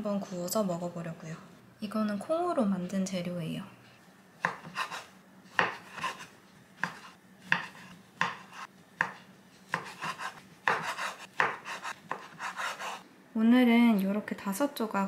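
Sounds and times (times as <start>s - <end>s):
knife chopping on wooden board: 4.4s - 13.0s.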